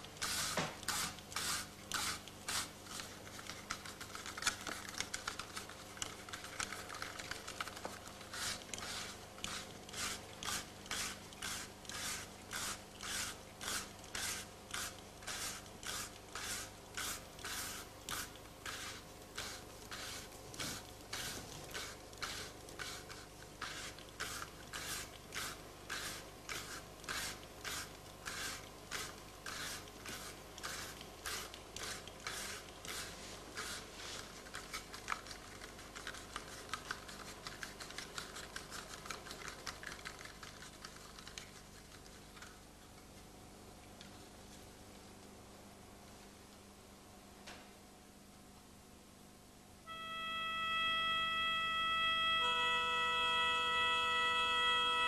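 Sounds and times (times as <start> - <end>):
hand percussion scraping strokes: 0.0 - 41.2
faint steady drone: 49.8 - 55.0.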